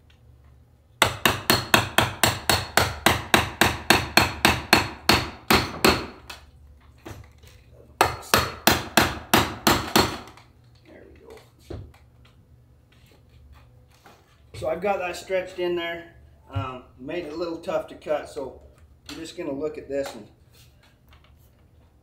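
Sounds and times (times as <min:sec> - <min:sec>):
hammer tapping on an awl: 0:01.0 - 0:06.4.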